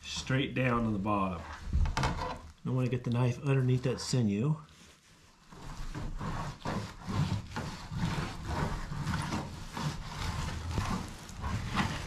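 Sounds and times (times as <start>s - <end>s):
blade scraping metal table: 5.6s - 12.0s
knife sawing through meat: 6.2s - 12.0s.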